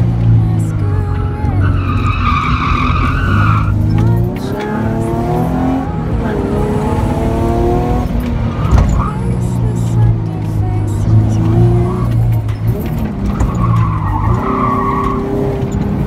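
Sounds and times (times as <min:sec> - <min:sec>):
car engine revving: 0:00.0 - 0:16.0
tyres squealing: 0:00.5 - 0:04.8, 0:08.2 - 0:16.0
sharp thump: 0:08.6 - 0:09.0.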